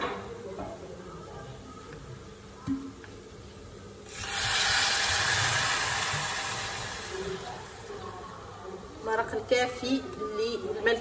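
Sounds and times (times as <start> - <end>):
water hissing in hot pan: 4.0 - 8.8
water pouring: 4.1 - 8.1.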